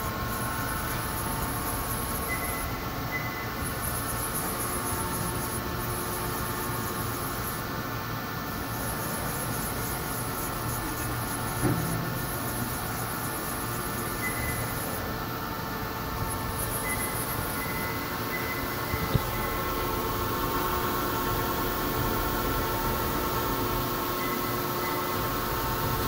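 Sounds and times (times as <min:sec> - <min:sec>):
machine hum: 0:00.0 - 0:26.0.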